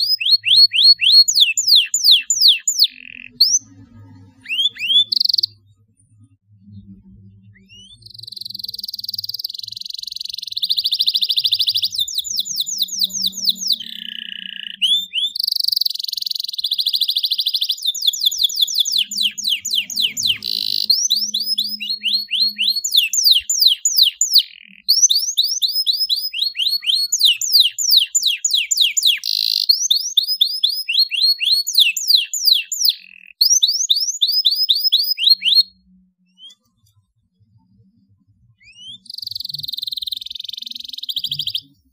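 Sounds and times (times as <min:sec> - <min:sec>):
canary singing: 0:00.0 - 0:05.8, 0:07.5 - 0:36.7, 0:38.5 - 0:41.9.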